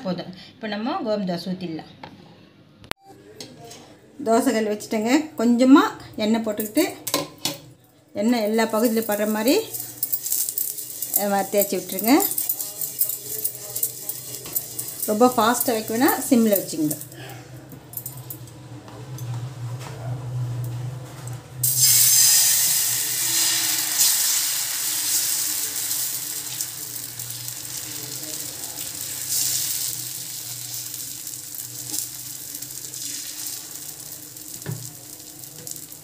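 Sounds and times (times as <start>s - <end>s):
batter sizzling on hot pan: 8.5s - 16.8s, 21.6s - 36.0s.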